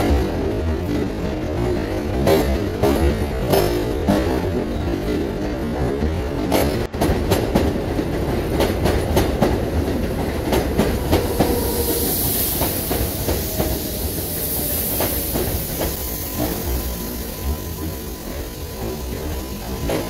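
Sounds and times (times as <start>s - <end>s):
train rumbling on steel track: 0.0s - 20.0s
wheels clacking over rail joints: 0.0s - 20.0s
high hiss: 9.2s - 20.0s.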